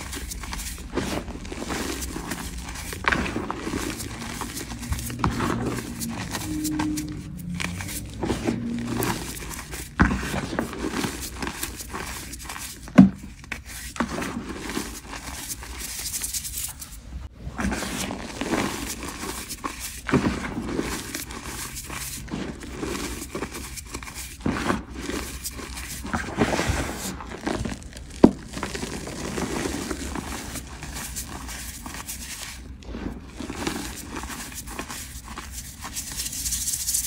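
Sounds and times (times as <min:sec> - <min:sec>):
powder crunching by hand: 0:00.0 - 0:37.0.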